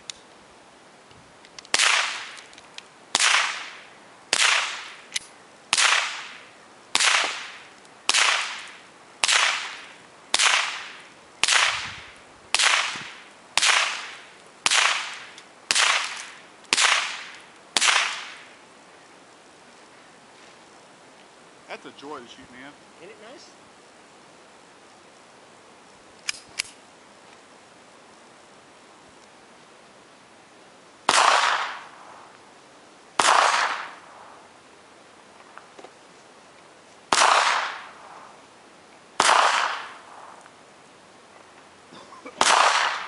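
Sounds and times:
gunshots with echo: 37.1s - 37.9s, 39.2s - 40.0s, 42.4s - 43.0s.

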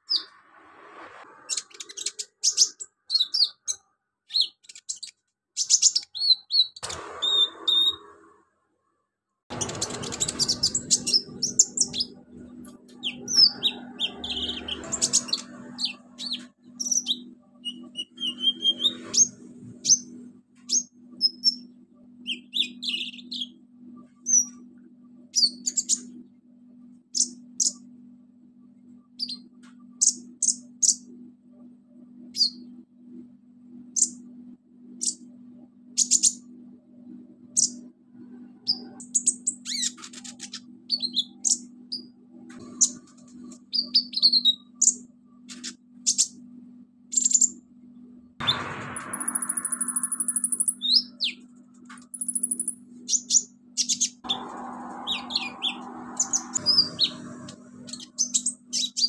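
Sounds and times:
bird singing chirps and trills: 1.5s - 8.0s, 9.5s - 20.1s, 20.7s - 23.6s, 25.3s - 26.2s, 32.3s - 32.7s, 36.0s - 36.4s, 38.6s - 46.4s, 47.1s - 47.6s, 48.4s - 59.0s.

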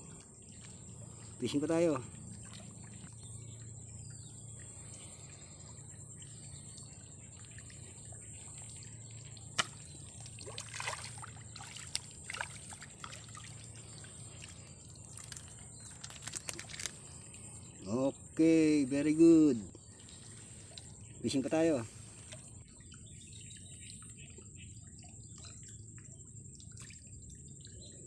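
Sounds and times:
light water splashes: 0.0s - 28.0s
small ticks: 11.5s - 17.9s, 19.7s - 21.1s.

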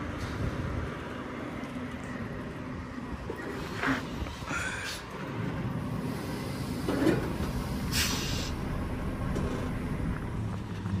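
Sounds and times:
truck diesel engine running: 0.0s - 11.0s
short air hissing bursts: 7.6s - 8.6s.

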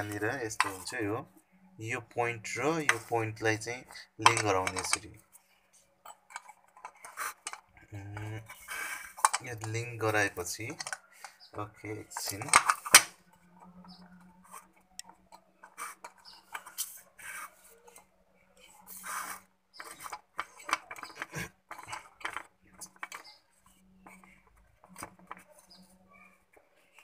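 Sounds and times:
faint metal clicks and scraping: 0.0s - 1.8s, 2.4s - 27.0s.

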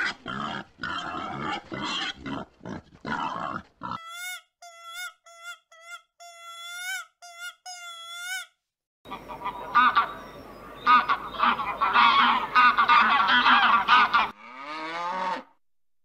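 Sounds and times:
wild boar grunting: 0.0s - 4.0s
high squeaky calls: 3.9s - 14.0s.

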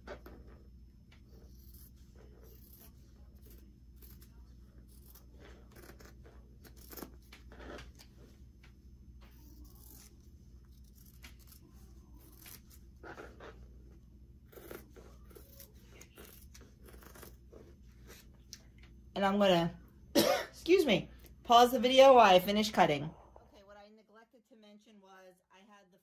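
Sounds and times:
fabric shears snipping: 9.3s - 12.8s.

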